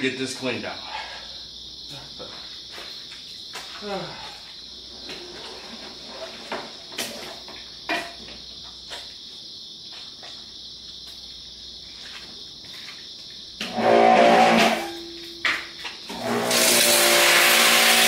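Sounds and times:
pressure washer running: 16.1 - 18.0
water spray hissing: 16.2 - 18.0.

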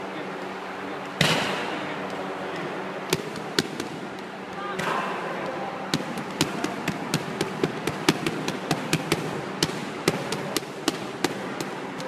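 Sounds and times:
boxing gloves smacking mitts: 2.6 - 5.1, 5.9 - 12.0.

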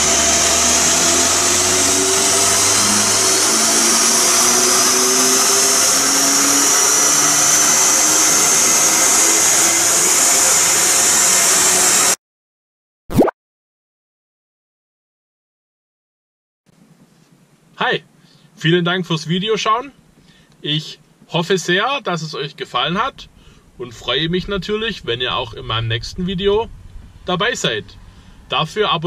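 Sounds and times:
car engine on dynamometer: 0.0 - 12.2, 23.0 - 29.0
high whine rising in pitch: 0.0 - 12.2, 23.0 - 29.0.

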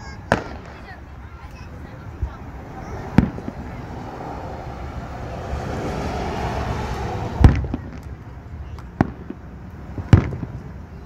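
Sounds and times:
steady background noise: 0.0 - 11.0
firework shells bursting: 0.3 - 1.1, 3.1 - 3.8.

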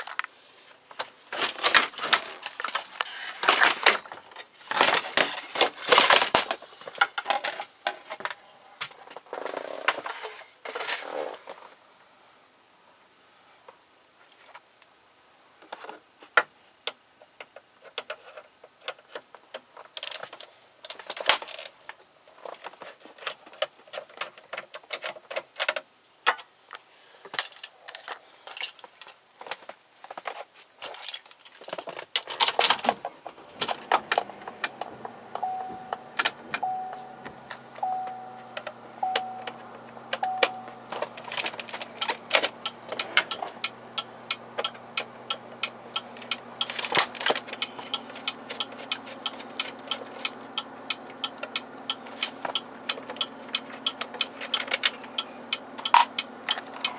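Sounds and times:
clicks and rattles of dashboard plastics: 4.7 - 8.3, 31.0 - 37.7, 38.5 - 56.9
steady low hum: 33.3 - 56.9
car warning chime beeping: 34.2 - 46.8, 47.4 - 54.3.

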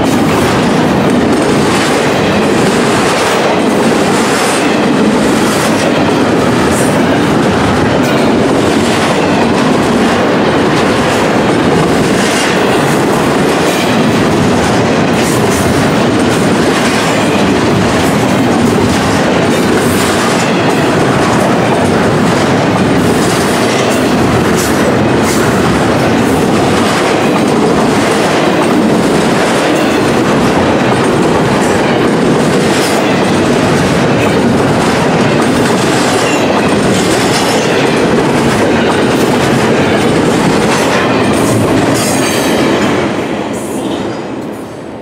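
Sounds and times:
freight train wheels clicking: 0.0 - 45.0.

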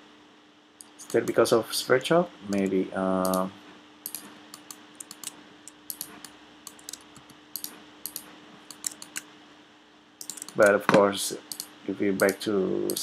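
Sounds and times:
faint steady hum: 0.0 - 13.0
keyboard and mouse clicking: 2.5 - 9.3, 10.2 - 13.0.

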